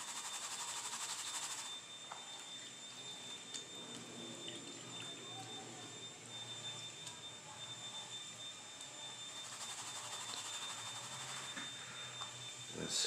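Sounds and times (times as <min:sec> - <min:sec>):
small ticks: 0:09.4 - 0:12.4.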